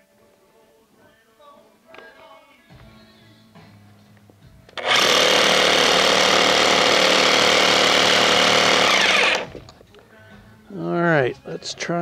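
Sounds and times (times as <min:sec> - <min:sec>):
hammer drill boring into concrete: 0:04.8 - 0:09.6.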